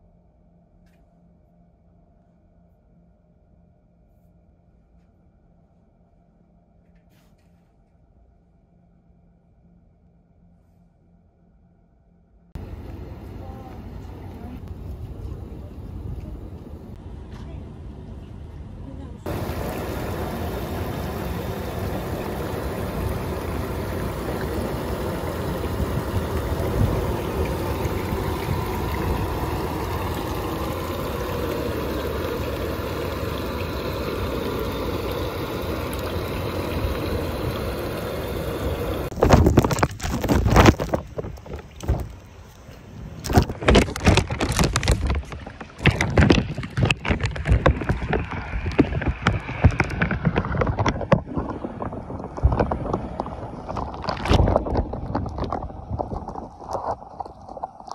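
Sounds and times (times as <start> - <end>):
muffled rush of water: 12.6 - 17.6, 18.8 - 57.9
loud splashes and knocks: 39.1 - 42.2, 43.2 - 57.0.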